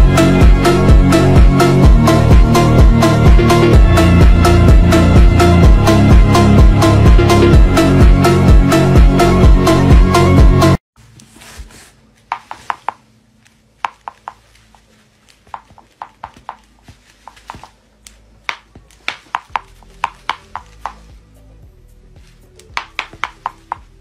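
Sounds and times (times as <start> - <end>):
electronic dance music: 0.0 - 10.8.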